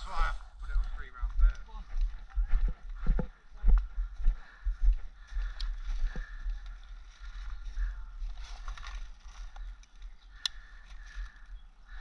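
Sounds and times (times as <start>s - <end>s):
footsteps on bark path: 0.1s - 12.0s
sharp clicks: 9.5s - 10.7s.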